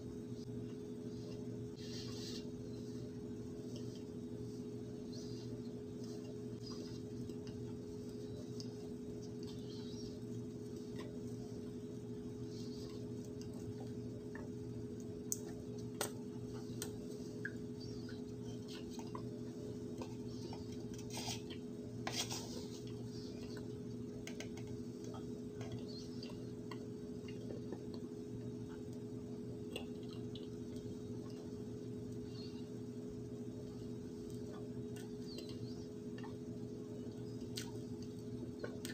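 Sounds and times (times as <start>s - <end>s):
steady low hum: 0.0s - 38.9s
small clicks and taps: 22.8s - 29.0s.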